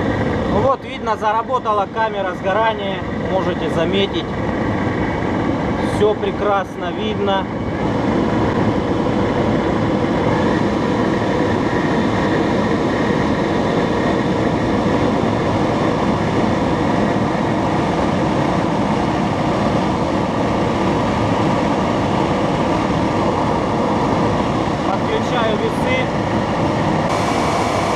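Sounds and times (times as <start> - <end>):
electric jet engine rushing air: 7.8 - 27.9
faint steady whine: 27.1 - 27.9.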